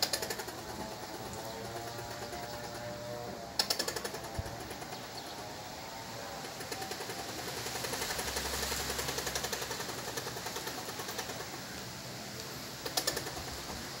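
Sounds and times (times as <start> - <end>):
sharp clicks: 0.0 - 3.0, 3.6 - 5.4, 6.4 - 13.9
squirrel chattering: 3.6 - 5.4, 6.4 - 11.8, 12.8 - 13.8.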